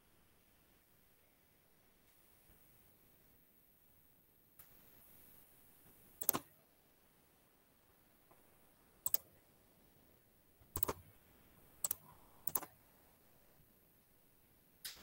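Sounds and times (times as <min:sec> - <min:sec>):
mouse and key clicks: 0:06.2 - 0:06.5, 0:09.0 - 0:09.3, 0:10.7 - 0:11.0, 0:11.8 - 0:12.8.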